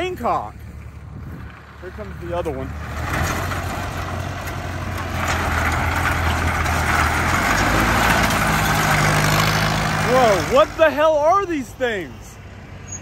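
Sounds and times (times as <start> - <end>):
diesel tractor engine running: 0.0 - 13.0.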